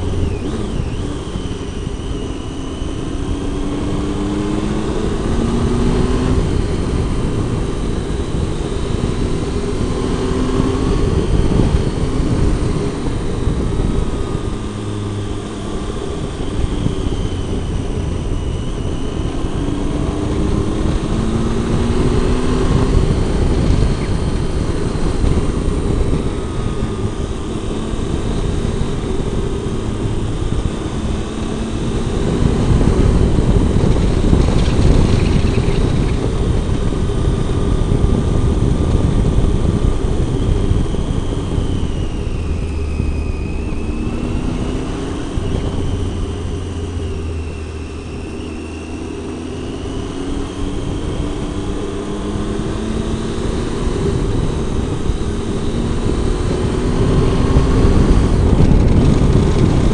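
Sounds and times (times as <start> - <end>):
motorcycle engine revving: 0.0 - 59.9
wind rush on microphone: 0.0 - 59.9.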